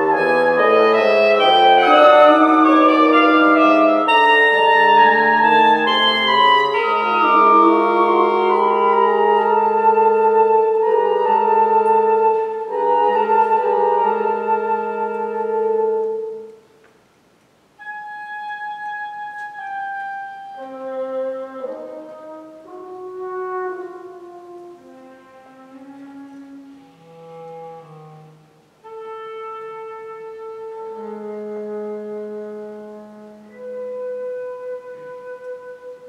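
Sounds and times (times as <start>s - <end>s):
woodwind quintet playing: 0.0s - 16.7s, 17.8s - 36.0s.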